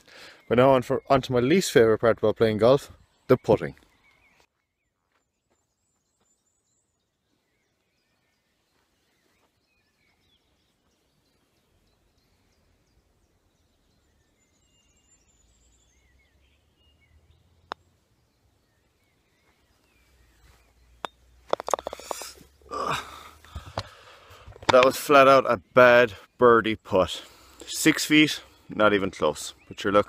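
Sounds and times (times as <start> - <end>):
faint bird chirps: 0.0 - 30.0
putter striking golf ball: 21.0 - 22.5, 24.6 - 25.0.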